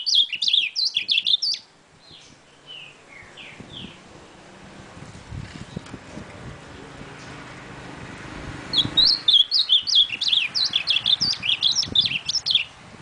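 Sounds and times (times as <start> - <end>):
bird singing whistled notes: 0.0 - 4.0, 8.7 - 12.8.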